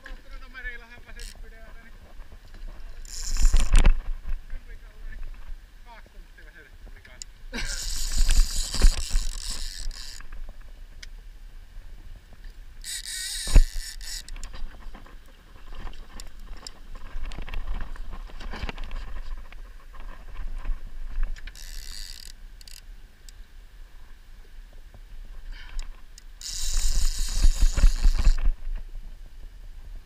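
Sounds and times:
microphone handling noise: 0:00.0 - 0:05.6, 0:06.7 - 0:10.8, 0:13.4 - 0:21.6, 0:24.8 - 0:30.0
fishing reel buzzing: 0:00.6 - 0:01.4, 0:02.9 - 0:03.9, 0:07.6 - 0:10.4, 0:12.8 - 0:14.8, 0:21.4 - 0:22.9, 0:26.1 - 0:28.5
wind rumble: 0:13.6 - 0:21.4.

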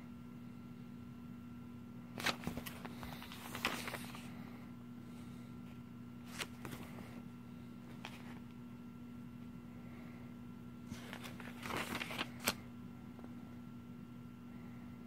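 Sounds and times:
faint steady hum: 0:00.0 - 0:15.0
paper pages rustling: 0:02.2 - 0:04.3, 0:06.2 - 0:07.2, 0:07.8 - 0:08.6, 0:10.9 - 0:12.6.

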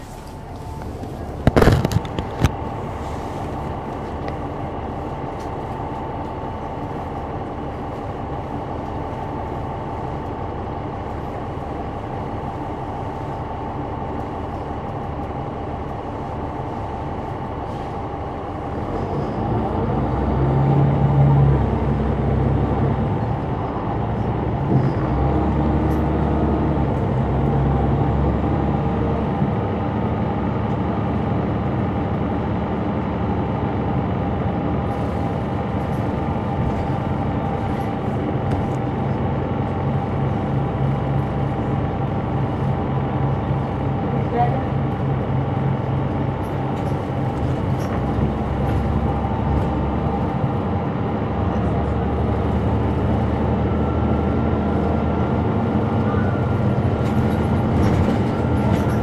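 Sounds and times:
diesel bus engine running: 0:00.0 - 0:59.0.

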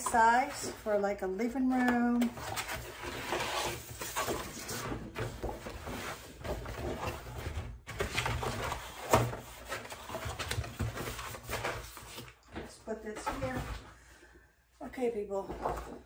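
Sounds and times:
cardboard scraping and flexing: 0:02.4 - 0:12.1
paper rustling: 0:02.4 - 0:13.8.

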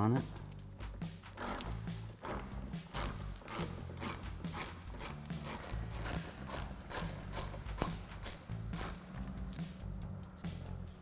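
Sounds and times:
hand ratchet clicking: 0:01.4 - 0:09.1.

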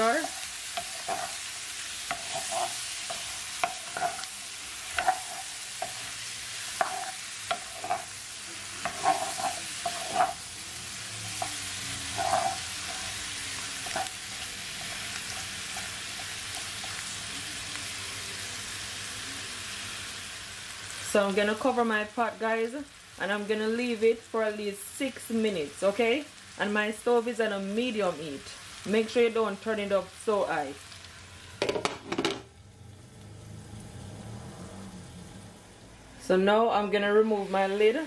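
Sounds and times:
wooden spoon scraping pan: 0:00.0 - 0:10.5, 0:11.1 - 0:17.0
chicken wings sizzling in oil: 0:00.0 - 0:38.0.

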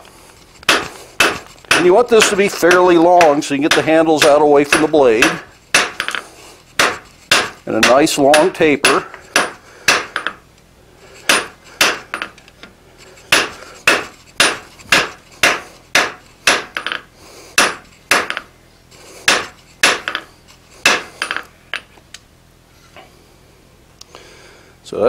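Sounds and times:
hammer blows on steel on anvil: 0:00.7 - 0:06.2, 0:06.8 - 0:10.4.

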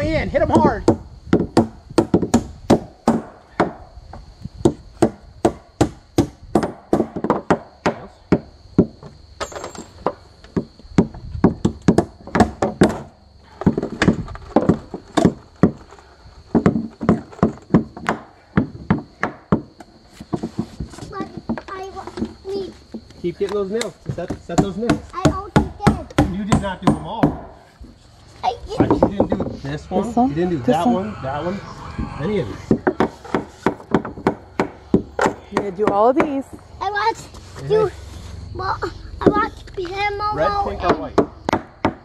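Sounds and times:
hammer striking nails in wood: 0:00.5 - 0:03.8, 0:16.5 - 0:19.8, 0:24.3 - 0:27.5, 0:32.8 - 0:36.3, 0:41.2 - 0:42.0.

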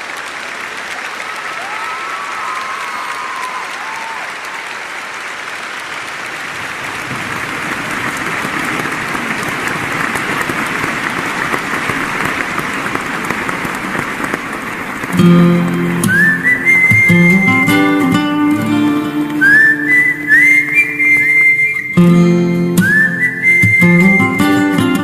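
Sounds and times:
audience applauding: 0:00.0 - 0:25.0
guitar playing: 0:15.1 - 0:21.2, 0:21.8 - 0:25.0.

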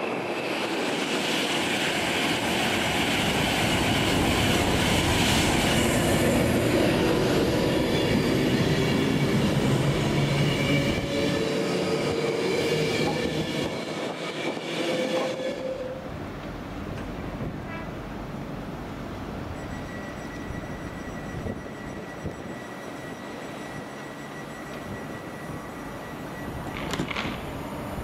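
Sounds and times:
train wheels rushing on track: 0:00.0 - 0:28.0
thin whining tones: 0:19.5 - 0:28.0.

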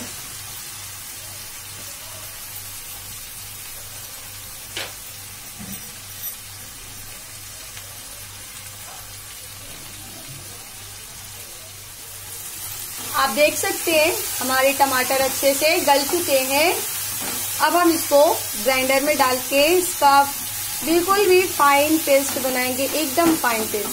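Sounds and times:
vegetables sizzling in oil: 0:00.0 - 0:23.9.

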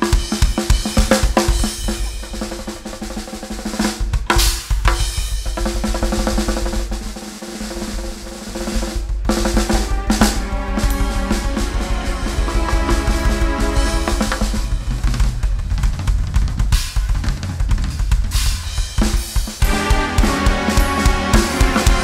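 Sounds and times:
snare drum rolls: 0:00.0 - 0:22.0
bass drum strokes: 0:08.8 - 0:22.0
cymbal crashes: 0:09.4 - 0:15.9
low keyboard chord: 0:09.7 - 0:15.2, 0:19.6 - 0:22.0.

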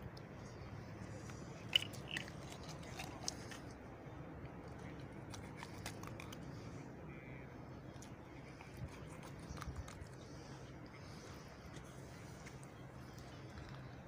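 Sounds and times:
steady low hum: 0:00.0 - 0:14.0
wet crunching: 0:01.1 - 0:03.8, 0:04.4 - 0:06.7.

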